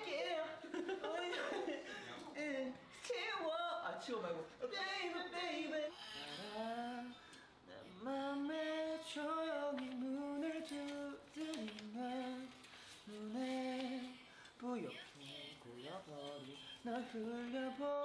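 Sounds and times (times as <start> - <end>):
man singing unaccompanied: 5.6 - 18.0.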